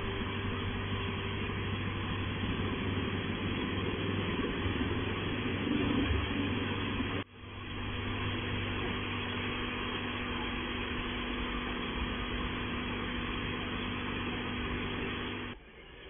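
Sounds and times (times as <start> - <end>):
pump hum: 0.0 - 16.0.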